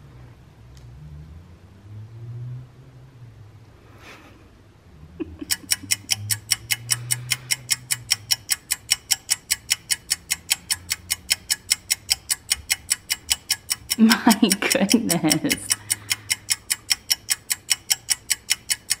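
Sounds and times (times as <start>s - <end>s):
clock ticking: 5.2s - 19.0s.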